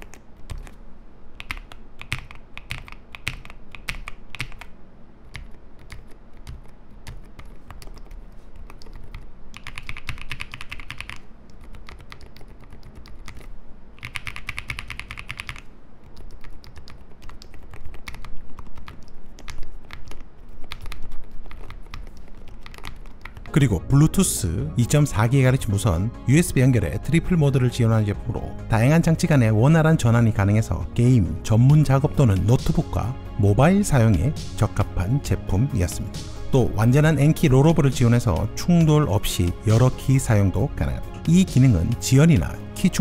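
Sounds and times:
muted mechanical keyboard typing: 0.0 - 0.8, 1.4 - 23.6.

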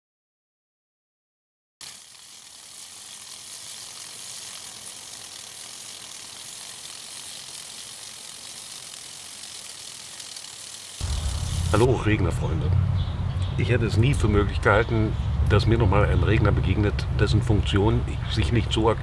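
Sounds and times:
sprinkler ratchet clicking: 1.8 - 11.9
sprinkler water jet hissing: 1.8 - 12.0.

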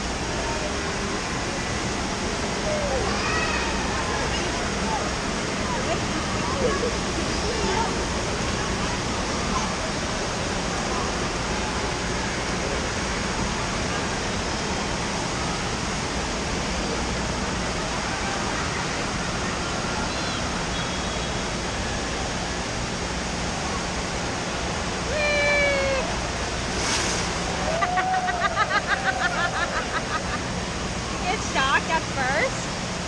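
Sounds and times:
crowd noise: 0.0 - 32.9
water falling and splashing: 24.1 - 30.2.

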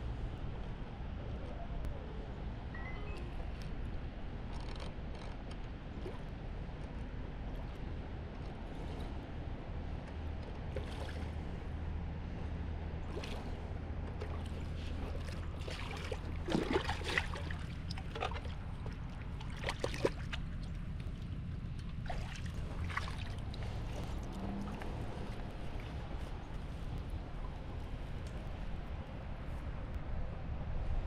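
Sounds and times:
fish splashing at water surface: 14.2 - 26.0.

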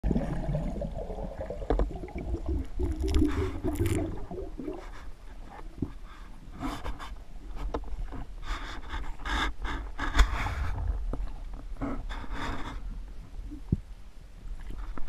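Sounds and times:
low underwater rumble: 0.0 - 6.0, 10.2 - 15.0
rushing bubbling hiss: 0.1 - 5.0.

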